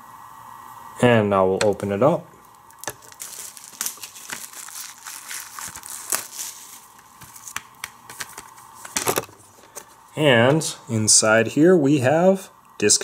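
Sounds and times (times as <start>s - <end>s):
plastic shrink wrap crinkling: 2.7s - 9.7s.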